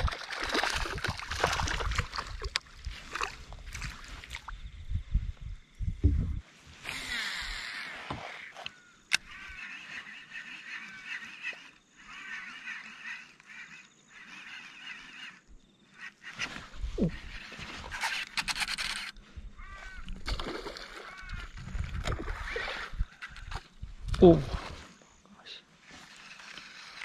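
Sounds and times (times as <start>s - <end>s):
waterfowl calling: 7.0s - 18.3s, 19.5s - 20.2s, 20.8s - 21.5s.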